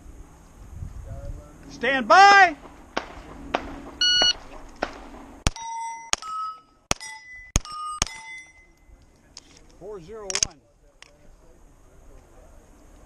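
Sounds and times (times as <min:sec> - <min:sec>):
pistol shots: 0:02.6 - 0:08.4
shot timer beep: 0:04.0 - 0:04.4
steel plate ringing: 0:05.5 - 0:08.9.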